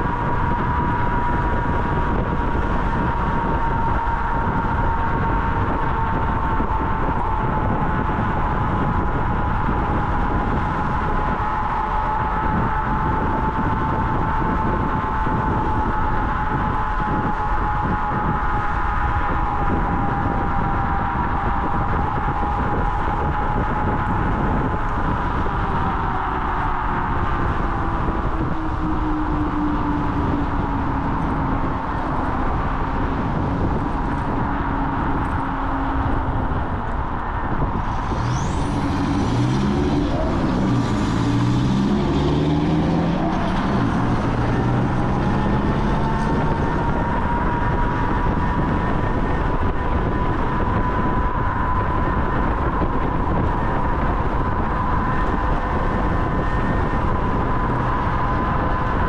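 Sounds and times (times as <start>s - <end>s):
low droning with stepping pitches: 0.0s - 59.0s
wind rush: 0.0s - 59.0s
electric motor whine: 19.6s - 59.0s.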